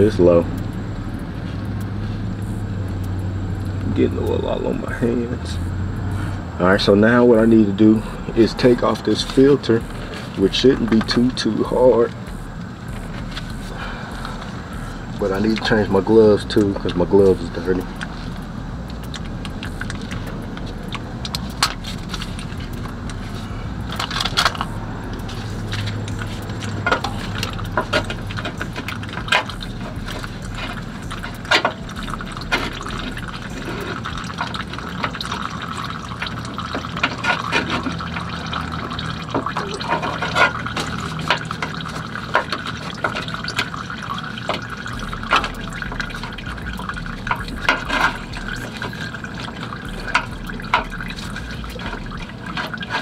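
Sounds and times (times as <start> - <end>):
oil pouring into a pan: 25.3 - 53.0.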